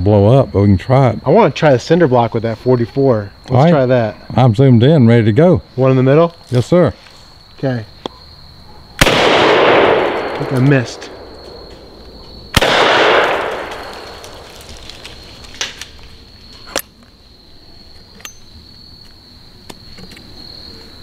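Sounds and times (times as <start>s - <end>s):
crickets chirring: 0.0s - 21.0s
shotgun shot with echo: 9.0s - 11.9s, 12.5s - 14.4s.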